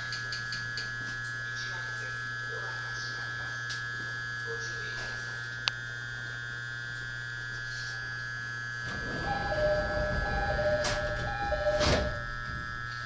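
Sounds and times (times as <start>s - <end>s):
electrical equipment hum: 0.0s - 13.0s
steady high tone: 8.9s - 12.4s.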